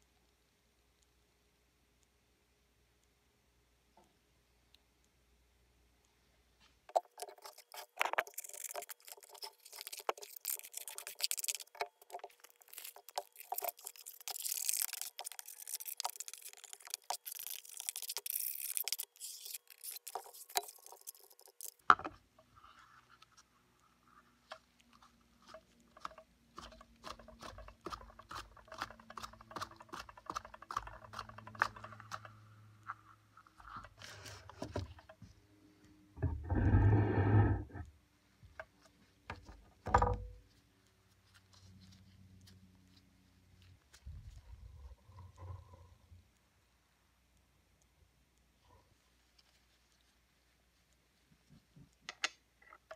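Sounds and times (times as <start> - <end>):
hands handling plastic parts: 6.9 - 35.3
rumbling rub: 36.2 - 37.9.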